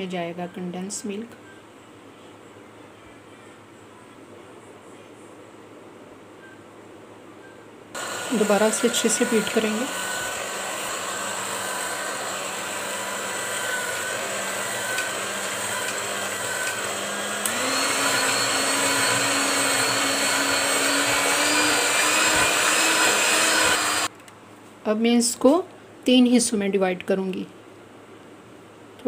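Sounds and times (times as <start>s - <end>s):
electric hand mixer running: 8.0s - 24.1s.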